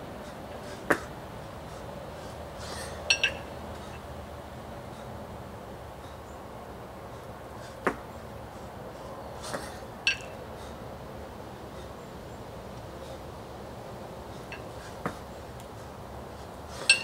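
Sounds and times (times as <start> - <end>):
kettlebells clinking together: 3.1 - 4.0, 10.1 - 10.4, 16.8 - 17.0.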